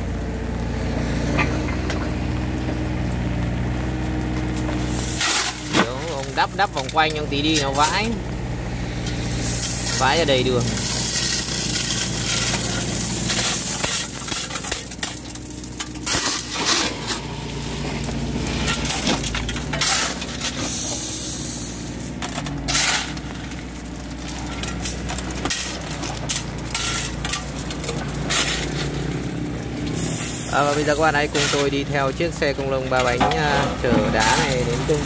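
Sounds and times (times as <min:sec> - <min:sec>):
diesel engine running: 0:00.0 - 0:35.0
shovel scraping crushed stone: 0:04.6 - 0:08.2, 0:09.0 - 0:35.0
stones clattering: 0:09.1 - 0:17.3, 0:17.9 - 0:35.0.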